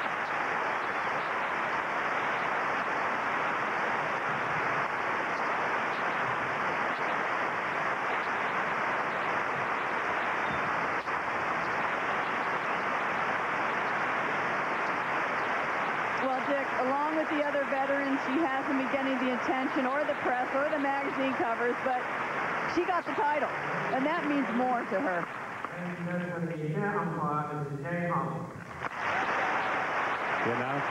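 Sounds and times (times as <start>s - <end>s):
crowd applauding: 0.0s - 26.1s, 28.7s - 30.9s.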